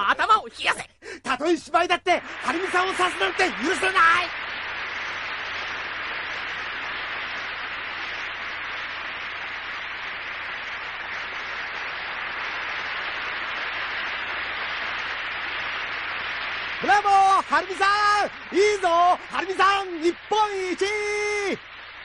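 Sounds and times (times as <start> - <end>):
audience applauding: 2.0 - 22.0.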